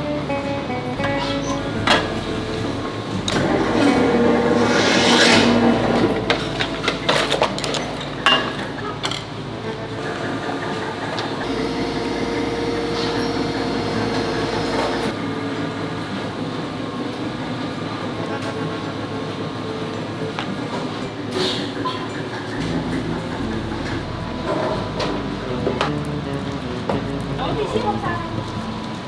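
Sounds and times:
steady machine hum: 9.3s - 20.3s.

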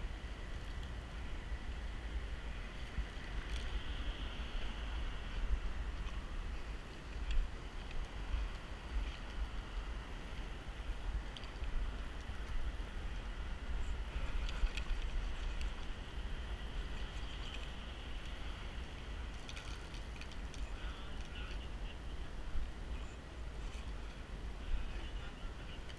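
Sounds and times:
steady hiss: 0.0s - 25.9s
wind rumbling on microphone: 0.0s - 25.9s.

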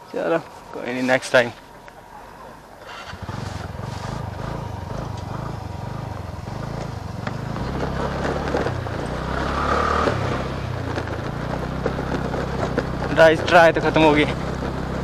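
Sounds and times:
scooter engine running: 2.8s - 15.0s.

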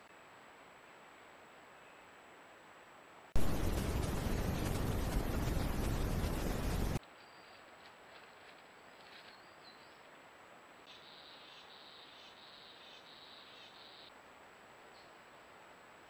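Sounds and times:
microphone hiss: 0.0s - 7.8s
faint forest background: 0.0s - 16.0s.

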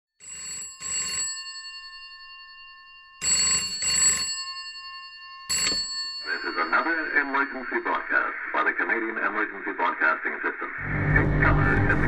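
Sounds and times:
telephone bell ringing: 0.2s - 9.0s.

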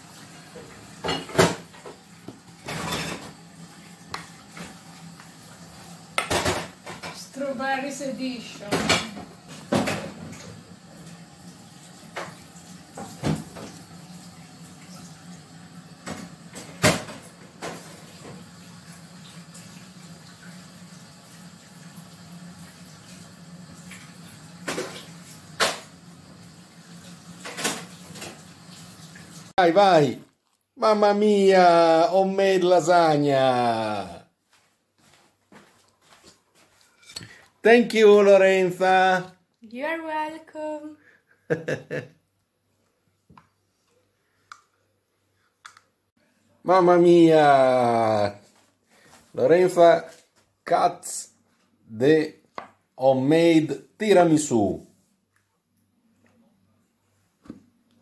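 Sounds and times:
dishes and utensils clattering: 1.0s - 1.9s, 2.6s - 3.4s.

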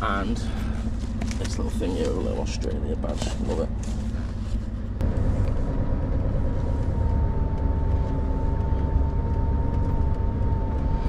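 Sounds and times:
diesel truck engine rumbling: 0.0s - 11.0s.

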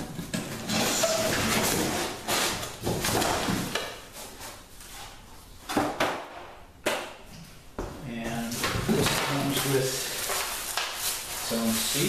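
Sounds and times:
cardboard rustling and scraping: 0.0s - 5.2s, 8.4s - 12.0s.

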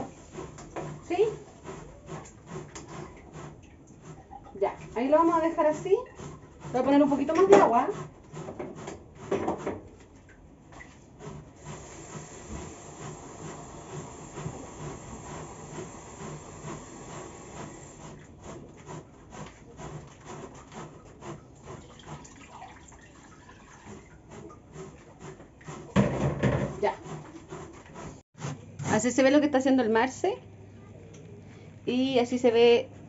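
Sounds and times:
zucchini grated on metal grater: 0.0s - 9.7s, 11.1s - 22.4s, 23.7s - 29.2s.

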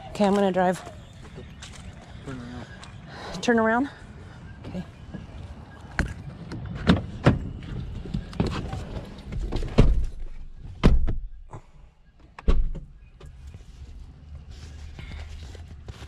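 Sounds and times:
car door knocks and thumps: 9.6s - 11.4s, 12.4s - 12.9s
car door opening: 12.4s - 13.3s.

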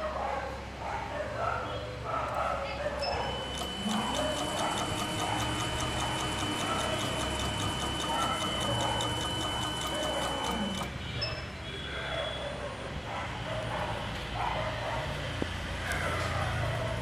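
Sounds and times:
coil winding machine whine: 3.2s - 10.9s
regular ticking: 3.2s - 10.9s.

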